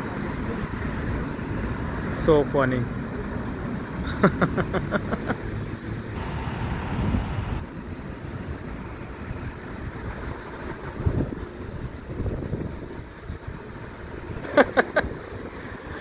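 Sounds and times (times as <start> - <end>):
cars driving past: 5.3 - 8.0.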